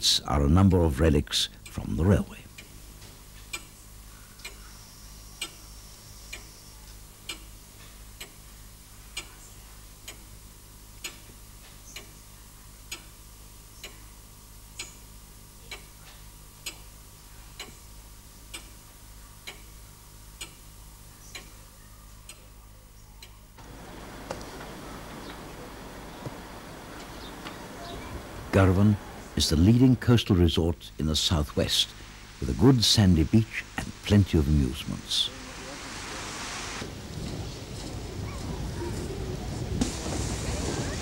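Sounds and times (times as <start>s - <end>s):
even background noise: 0.0s - 41.0s
clock ticking: 7.2s - 7.6s, 10.0s - 10.3s, 12.8s - 13.2s, 16.6s - 16.9s, 17.6s - 17.8s, 18.5s - 18.8s, 19.4s - 19.8s, 20.4s - 20.7s
low hum: 23.5s - 41.0s.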